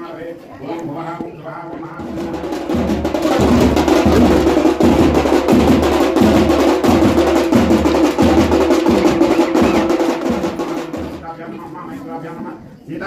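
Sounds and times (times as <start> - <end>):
drums in fast street rhythm: 1.7 - 11.6
heavy low drum beat: 2.0 - 11.3.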